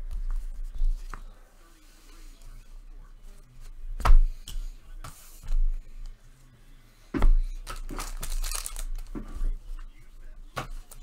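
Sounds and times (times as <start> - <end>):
cards and wrappers rustling: 7.5 - 10.0, 10.6 - 11.0.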